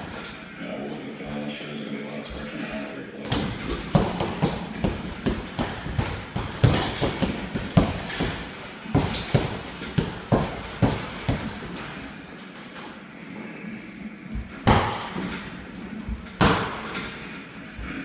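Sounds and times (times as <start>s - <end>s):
punches thudding on heavy bag: 3.3s - 11.8s, 14.6s - 15.4s, 16.1s - 17.1s.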